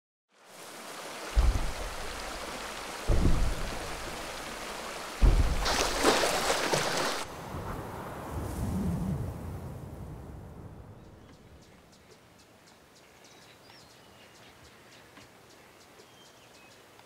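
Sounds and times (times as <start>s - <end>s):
stream running over rocks: 0.3s - 8.2s
splashing water rush: 0.4s - 9.6s
low thumps: 1.3s - 7.7s.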